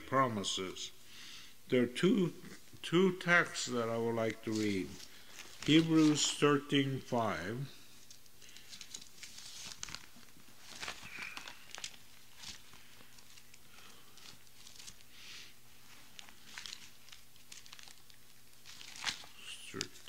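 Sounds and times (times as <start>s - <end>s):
paper pages rustling: 4.4s - 6.5s, 7.9s - 20.0s.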